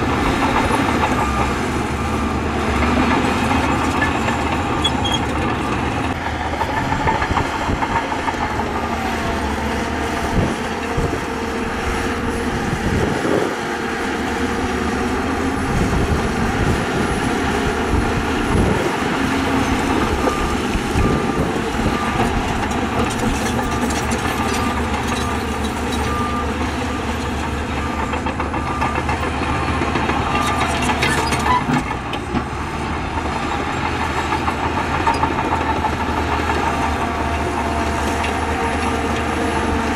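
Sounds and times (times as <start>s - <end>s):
heavy diesel machinery running: 0.0s - 39.9s
faint reversing alarm beeping: 20.0s - 23.0s.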